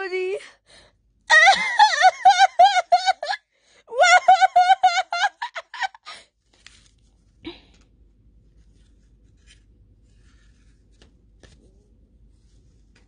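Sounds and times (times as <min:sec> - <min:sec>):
paper rustling and handling: 0:06.4 - 0:13.0.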